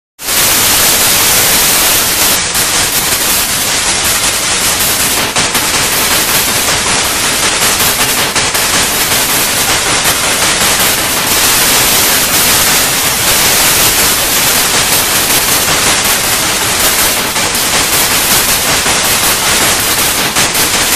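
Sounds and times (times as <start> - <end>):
tv static hiss: 0.2 - 20.9.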